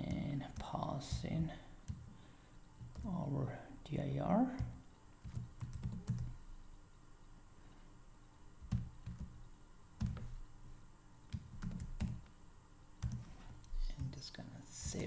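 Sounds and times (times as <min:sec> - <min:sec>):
computer keyboard typing: 0:00.0 - 0:02.1, 0:02.8 - 0:03.2, 0:04.5 - 0:06.4, 0:08.6 - 0:10.4, 0:11.3 - 0:12.3, 0:13.0 - 0:15.0.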